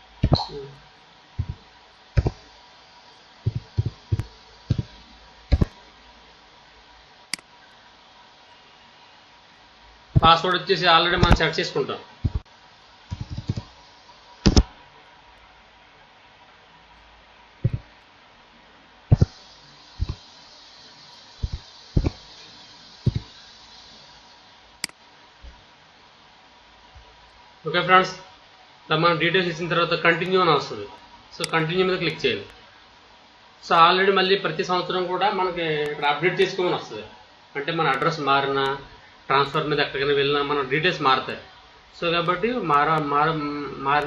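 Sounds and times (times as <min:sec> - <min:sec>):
faint steady hiss: 0:00.0 - 0:44.0
mouse click: 0:05.5 - 0:05.7, 0:13.1 - 0:13.7, 0:14.4 - 0:14.7
computer keys pressed: 0:13.1 - 0:13.7.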